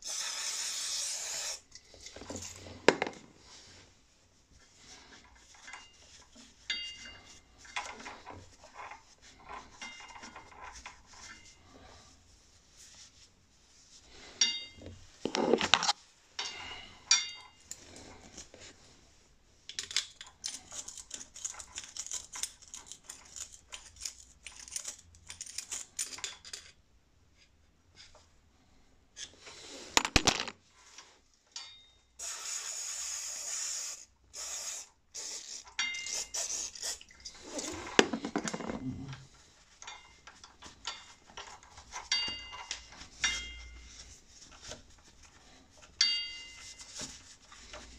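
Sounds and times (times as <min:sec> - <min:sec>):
small metallic clinks and taps: 0:06.6 - 0:08.4, 0:31.5 - 0:32.0, 0:39.8 - 0:44.0.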